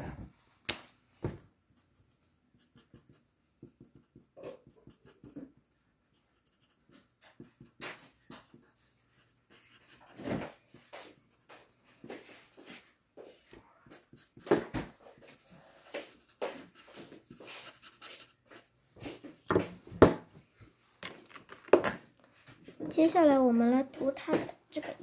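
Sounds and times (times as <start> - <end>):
marker scratching on paper: 1.7 - 19.7.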